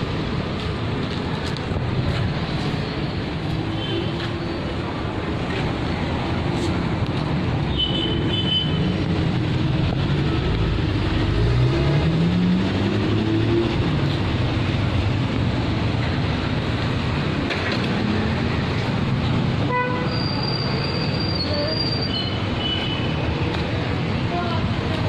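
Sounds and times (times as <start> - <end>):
traffic noise: 0.0 - 25.0
vehicle engine accelerating: 8.9 - 18.8.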